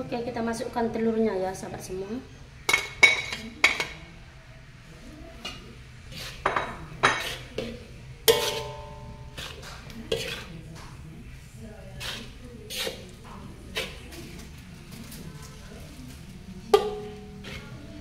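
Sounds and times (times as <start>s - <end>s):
metal spatula scraping wok: 5.3s - 10.6s, 11.9s - 14.4s, 16.8s - 18.0s
wok ringing: 8.2s - 10.2s, 16.7s - 17.8s.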